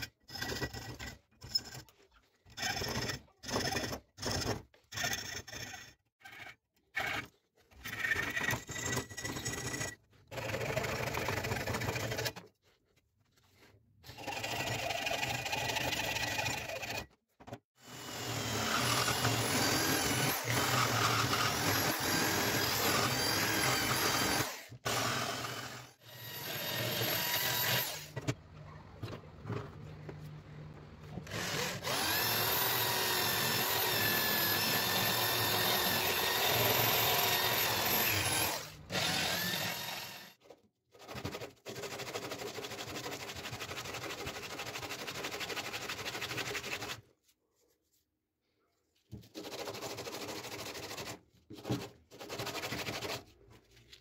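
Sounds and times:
rotary tool grinding wood: 0.0 - 12.6, 13.6 - 17.2, 17.8 - 28.2, 31.2 - 40.4.

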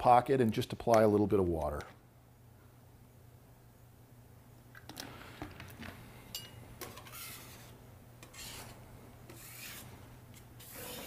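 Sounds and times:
putty knife scraping on slate: 6.8 - 11.0.

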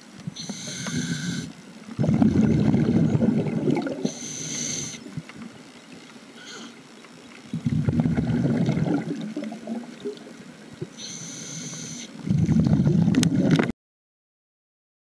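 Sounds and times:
regulator hissing inhale: 0.4 - 1.6, 4.0 - 5.2, 6.4 - 6.8, 10.9 - 12.3
exhaled bubbles rushing: 2.0 - 4.2, 7.5 - 10.4, 12.2 - 13.7.

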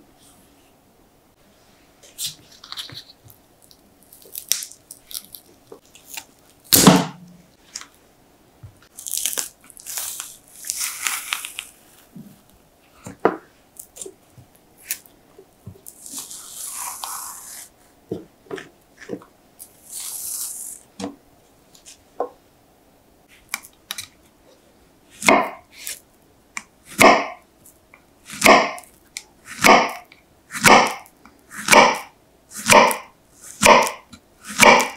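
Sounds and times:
banana peel tearing: 2.6 - 7.0, 8.9 - 11.9.

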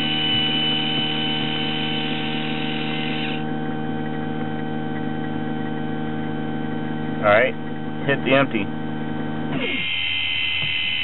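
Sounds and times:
electric valve motor whining: 0.0 - 6.4, 9.4 - 11.0
steady hum: 0.0 - 11.0.

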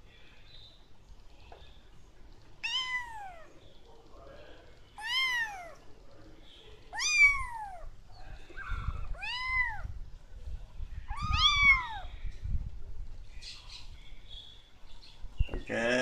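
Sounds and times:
kittens meowing: 2.6 - 3.6, 5.0 - 5.9, 6.9 - 10.0, 11.1 - 12.2.

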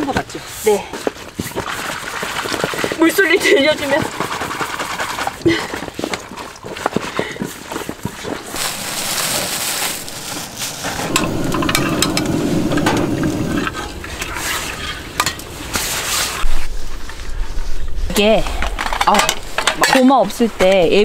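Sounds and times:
water splashing over greens: 8.5 - 11.2.

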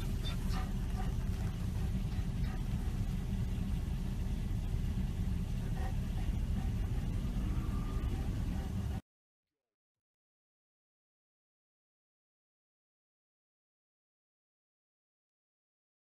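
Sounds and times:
car engine and road noise rumble: 0.0 - 9.0.

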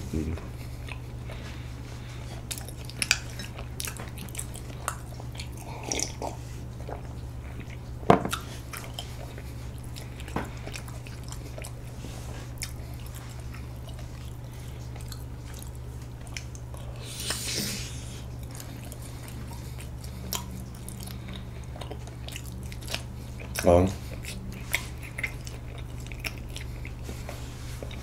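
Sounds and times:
chewing clicks: 2.5 - 6.2, 12.6 - 16.9, 18.4 - 27.0.

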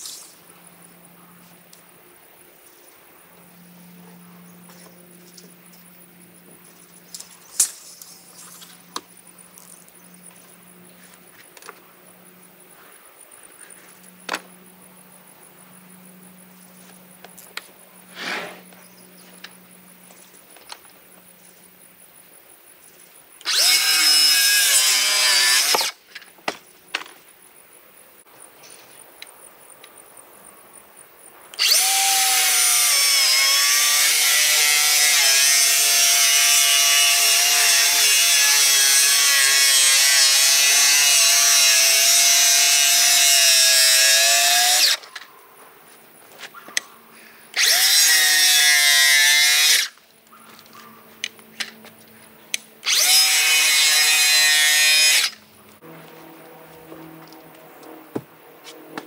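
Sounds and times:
power tool cutting wood boards: 23.4 - 26.0, 31.6 - 45.0, 47.6 - 50.0, 52.8 - 56.2.

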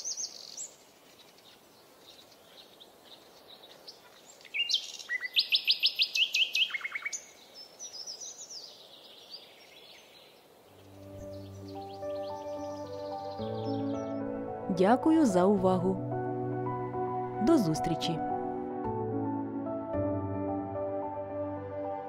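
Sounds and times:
songbirds chirping and trilling: 0.0 - 15.5.

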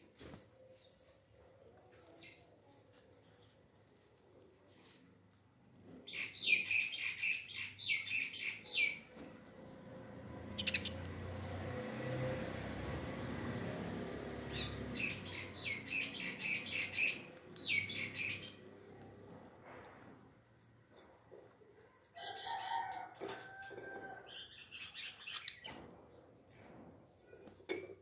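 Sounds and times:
parrots chirping: 10.6 - 11.1.

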